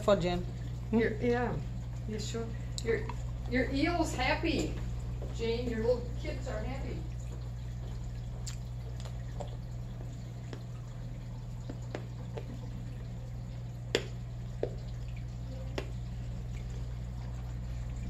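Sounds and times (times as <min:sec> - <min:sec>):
low pump hum: 0:00.0 - 0:18.0
water dripping and splashing: 0:00.0 - 0:18.0.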